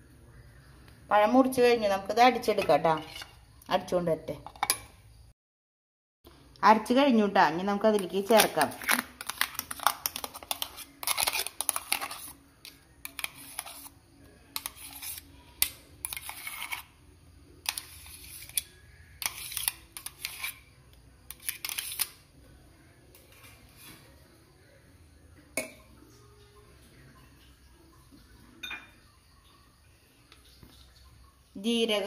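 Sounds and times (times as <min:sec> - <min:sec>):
spoon scraping steel jar: 0:02.5 - 0:03.4, 0:08.0 - 0:17.0, 0:17.6 - 0:20.7, 0:21.3 - 0:22.2.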